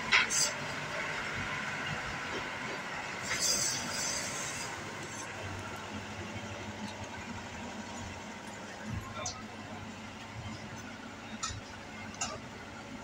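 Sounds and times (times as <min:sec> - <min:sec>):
combine harvester engine rumble: 0:00.0 - 0:13.0
brief high hiss: 0:03.2 - 0:04.8.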